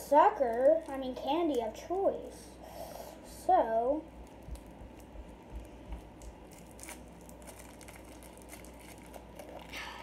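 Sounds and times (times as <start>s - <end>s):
plastic wrapper crinkling: 0.3s - 1.6s, 4.2s - 10.0s.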